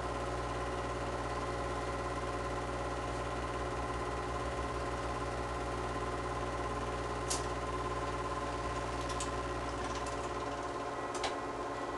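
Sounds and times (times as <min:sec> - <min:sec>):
small machine whirring hum: 0:00.0 - 0:11.9
sharp click: 0:07.3 - 0:07.5.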